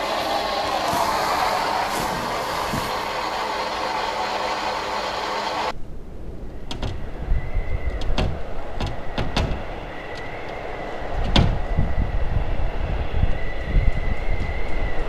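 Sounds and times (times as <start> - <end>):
faint high whine: 0.0 - 5.8, 6.4 - 15.0
steady low rumble: 0.0 - 6.5.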